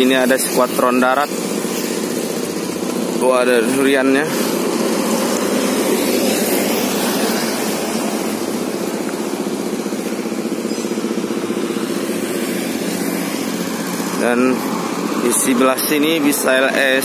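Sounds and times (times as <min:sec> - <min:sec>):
bus diesel engine idling: 0:00.0 - 0:17.0.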